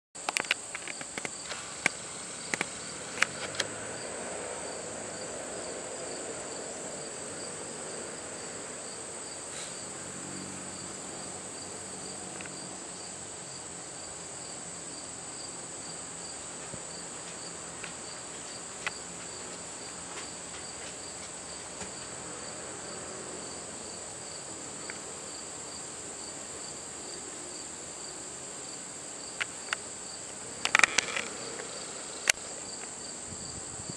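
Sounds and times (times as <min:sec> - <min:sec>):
insect pulsing chirp: 0:00.2 - 0:19.4, 0:27.5 - 0:33.9
insect high trill: 0:00.2 - 0:20.4, 0:22.4 - 0:33.9
sharp clicks: 0:30.6 - 0:31.6.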